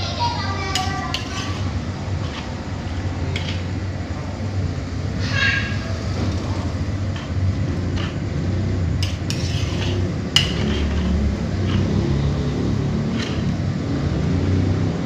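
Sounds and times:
metal ladle scraping a wok: 0.7s - 3.8s, 9.0s - 13.6s.

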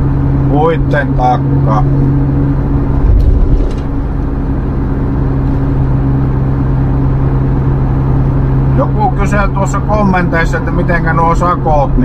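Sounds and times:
vehicle engine and road noise: 0.0s - 12.0s
low bump: 1.5s - 7.8s.

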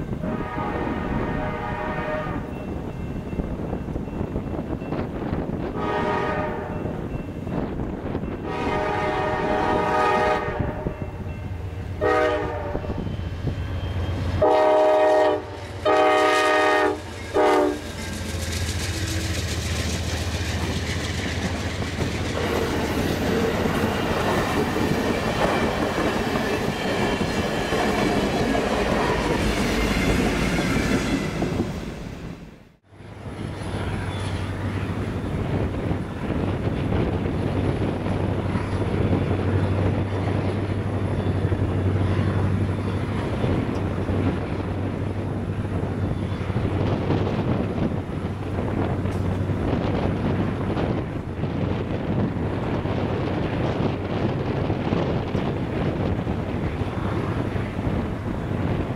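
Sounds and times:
diesel locomotive rumble: 0.0s - 58.9s
locomotive and cars passing: 0.0s - 58.9s
train air horn blasts: 0.1s - 2.6s, 5.7s - 6.9s, 8.4s - 11.2s, 12.0s - 13.1s, 14.2s - 18.0s.

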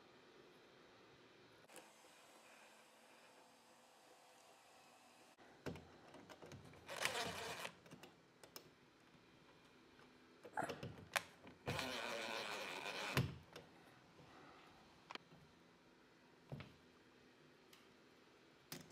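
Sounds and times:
drill clicks: 6.8s - 7.8s
cordless drill running: 6.9s - 7.8s, 11.7s - 13.2s.

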